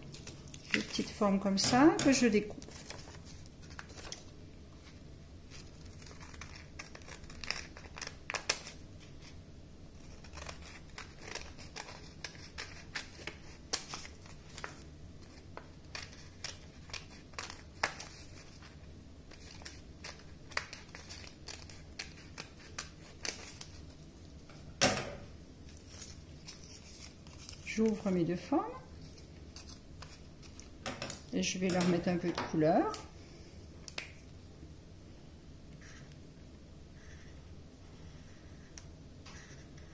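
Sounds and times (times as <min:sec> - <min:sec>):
paper rustling: 0:02.6 - 0:09.4, 0:10.0 - 0:24.5, 0:25.6 - 0:28.2, 0:28.9 - 0:33.0
scissors snipping paper: 0:05.8 - 0:08.8, 0:10.0 - 0:14.7.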